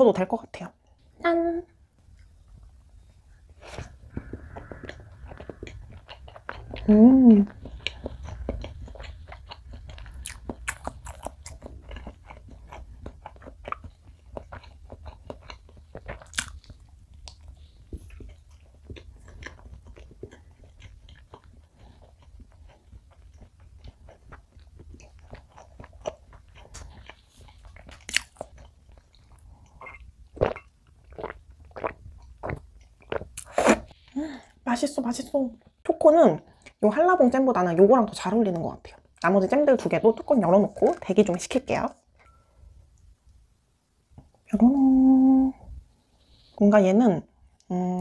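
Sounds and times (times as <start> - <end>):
wet chewing and mouth clicks: 2.0 - 34.6
sipping milk: 3.7 - 8.6.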